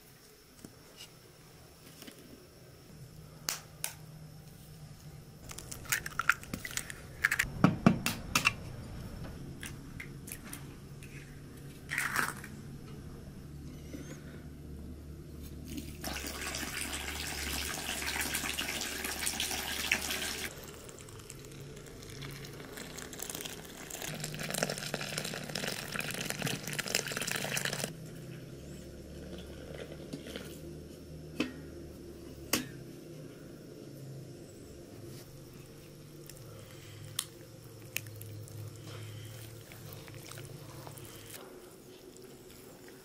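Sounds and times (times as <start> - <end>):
water pouring into flour: 15.7 - 27.9.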